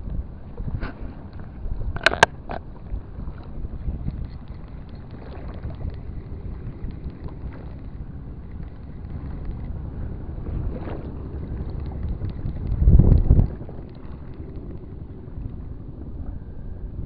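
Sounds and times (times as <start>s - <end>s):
wind rumbling on microphone: 0.0s - 17.0s
fishing reel ticking: 4.0s - 9.6s.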